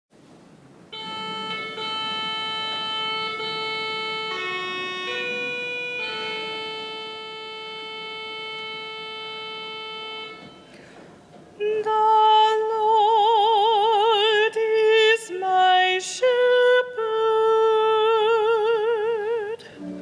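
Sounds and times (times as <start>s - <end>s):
organ playing chords: 0.9s - 11.3s, 19.7s - 20.0s.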